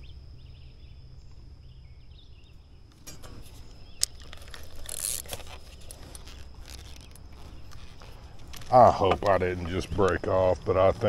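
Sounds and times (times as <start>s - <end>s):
fishing reel clicks and rustle: 2.9s - 10.3s.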